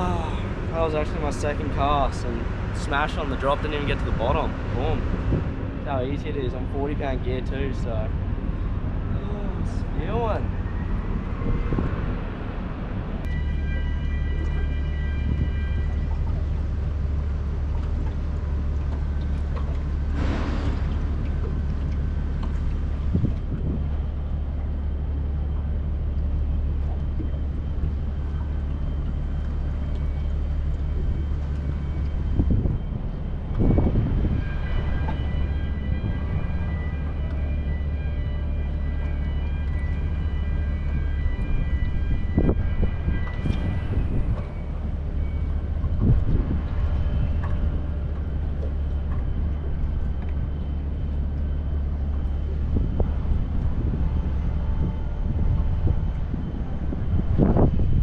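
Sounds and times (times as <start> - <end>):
low machinery hum: 0.0 - 58.0
high whining tone: 27.2 - 58.0.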